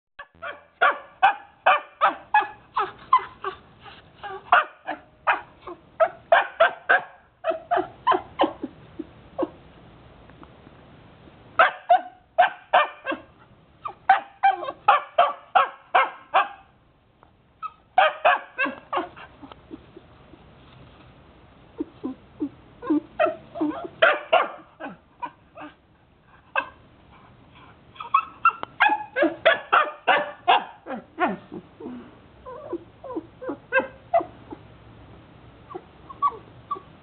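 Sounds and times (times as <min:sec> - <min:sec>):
puppy barking in high yips: 0:00.2 - 0:03.6, 0:04.2 - 0:08.7, 0:11.6 - 0:16.7, 0:17.6 - 0:19.3, 0:23.2 - 0:25.8, 0:28.0 - 0:31.4, 0:33.1 - 0:34.6.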